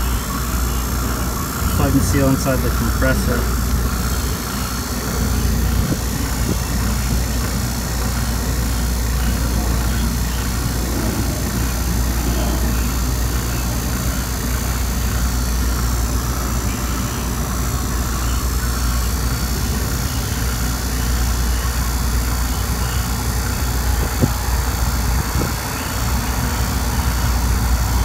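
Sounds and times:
vacuum pump running: 0.0s - 28.0s.

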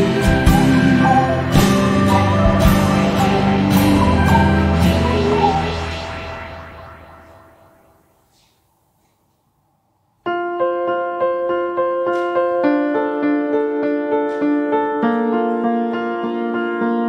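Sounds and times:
keyboard repeated notes: 0.0s - 7.2s.

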